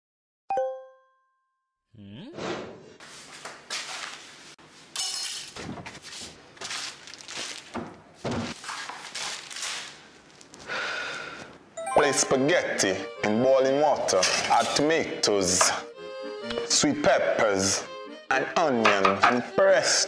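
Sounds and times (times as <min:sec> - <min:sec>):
smartphone reminder chime: 0:00.5 - 0:01.4, 0:11.8 - 0:12.5.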